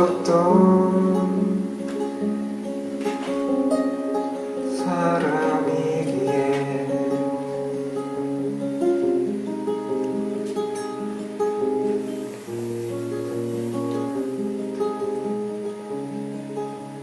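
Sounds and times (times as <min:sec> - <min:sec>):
acoustic guitar chords: 0:00.0 - 0:17.0.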